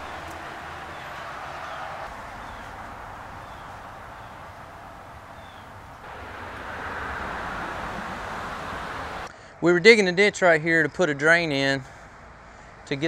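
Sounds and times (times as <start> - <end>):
steady background noise: 0.0 - 10.0.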